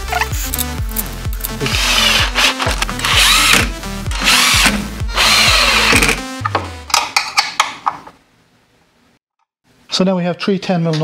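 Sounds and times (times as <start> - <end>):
cordless drill driving screws: 1.6 - 6.2.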